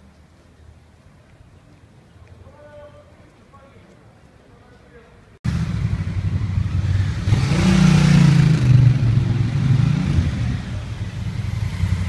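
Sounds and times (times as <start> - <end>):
motorcycle engine accelerating past: 5.5 - 12.0.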